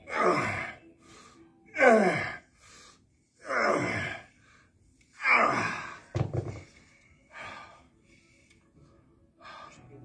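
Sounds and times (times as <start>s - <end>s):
dumbbell knock: 6.1s - 6.6s.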